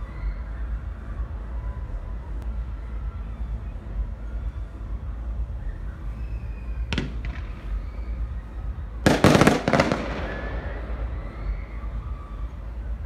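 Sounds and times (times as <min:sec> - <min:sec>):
low rumble: 0:00.0 - 0:13.0
firework crackle: 0:06.8 - 0:08.0, 0:09.0 - 0:11.7
firework pops: 0:06.9 - 0:07.6, 0:09.1 - 0:10.8
firework bangs: 0:06.9 - 0:08.0, 0:09.0 - 0:11.7.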